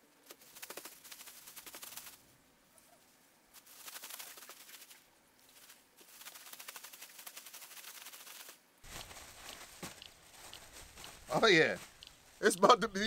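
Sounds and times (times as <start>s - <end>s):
plastic bag crinkling: 3.6s - 12.4s.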